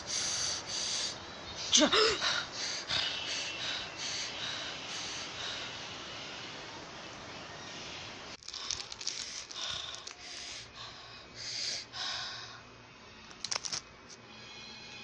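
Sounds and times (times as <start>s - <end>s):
plastic wrapper crinkling: 8.4s - 10.2s.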